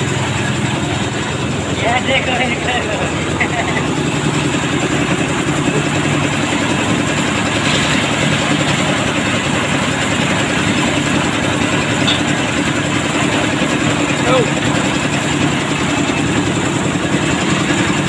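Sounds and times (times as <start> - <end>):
concrete mixer running: 0.0 - 18.0
concrete pouring out: 5.5 - 14.8.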